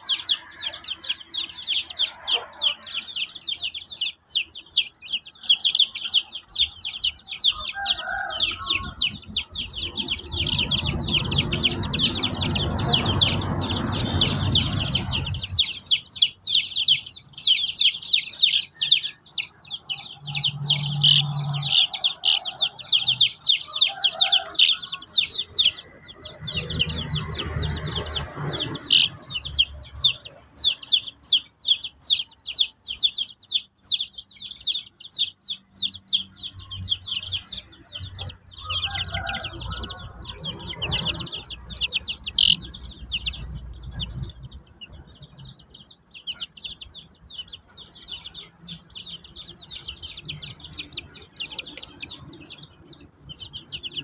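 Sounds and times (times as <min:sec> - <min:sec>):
chicks peeping: 0:00.0 - 0:54.0
low rumbling noise: 0:08.3 - 0:17.4, 0:25.0 - 0:30.7, 0:35.8 - 0:46.0.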